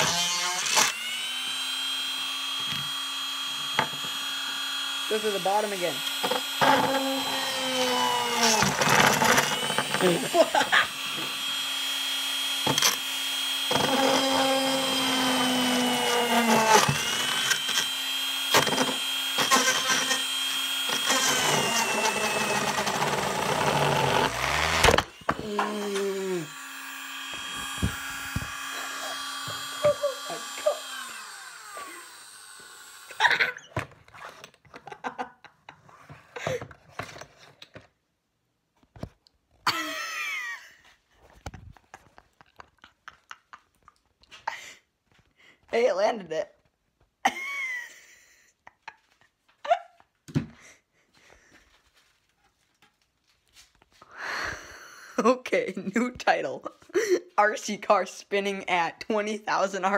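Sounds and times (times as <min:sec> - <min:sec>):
rotary tool whining: 0:00.0 - 0:34.6
drill bit grinding plastic: 0:00.0 - 0:35.0.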